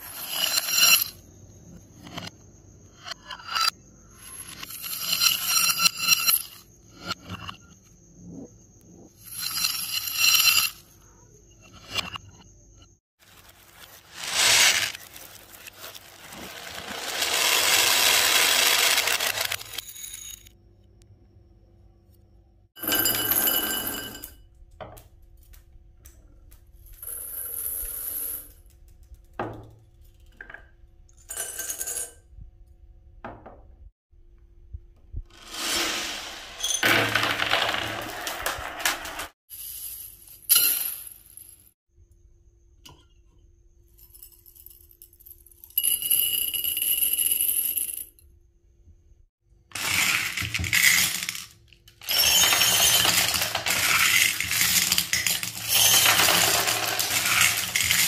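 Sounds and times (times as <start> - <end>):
beads poured into glass jars: 4.2 - 6.6, 9.2 - 10.8, 13.3 - 20.4, 35.4 - 40.2, 49.8 - 58.0.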